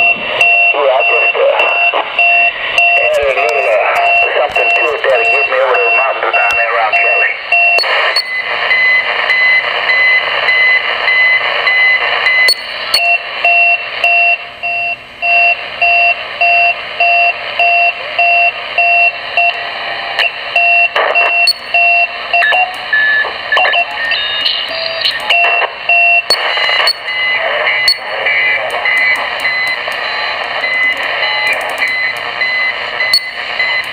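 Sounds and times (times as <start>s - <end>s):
radio hiss: 0.0s - 13.4s, 23.2s - 33.8s
electronic beeping over radio: 0.0s - 33.9s.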